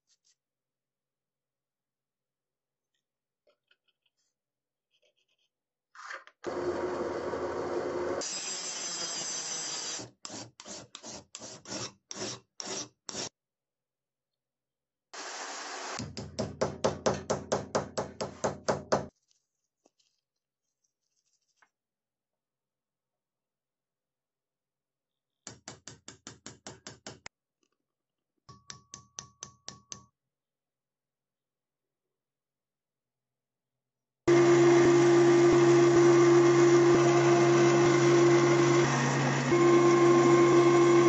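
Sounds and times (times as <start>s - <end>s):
file rasping on steel: 9.7s - 13.3s
drill press cutting steel: 34.3s - 41.0s.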